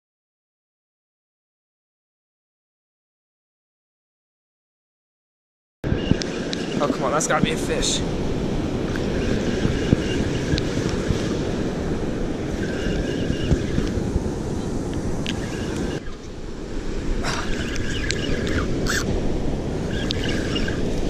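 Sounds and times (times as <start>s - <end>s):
breaking surf: 5.8s - 21.0s
wind noise on microphone: 5.8s - 21.0s.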